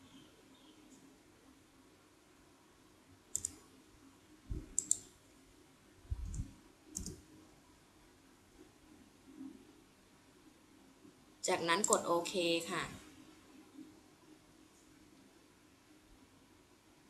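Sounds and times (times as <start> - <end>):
computer keyboard and mouse clicks: 3.3 - 3.6, 4.6 - 5.1, 6.2 - 7.3, 11.8 - 12.1.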